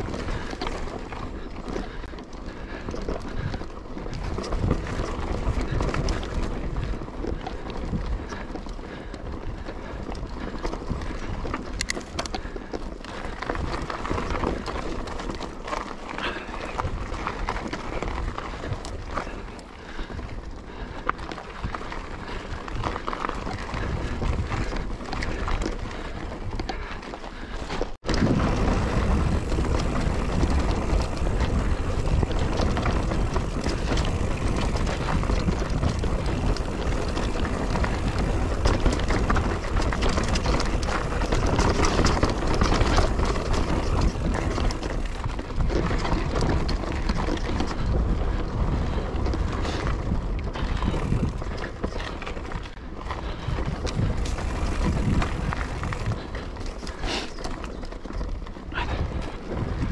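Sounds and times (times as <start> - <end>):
wind on microphone: 0.0 - 12.6, 28.0 - 57.1, 58.7 - 59.9
bike chain and frame rattling: 0.0 - 59.9
bike tyres crunching on dirt: 0.0 - 59.9.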